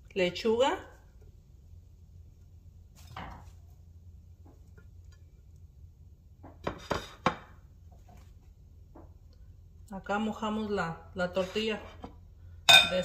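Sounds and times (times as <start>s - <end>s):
ceramic dishes clinking: 12.7s - 13.0s.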